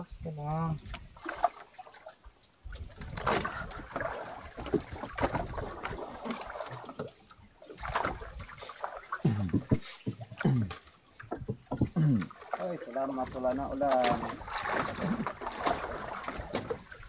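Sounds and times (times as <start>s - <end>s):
water splashing against boat: 0.0s - 17.0s
knocks: 11.4s - 12.0s.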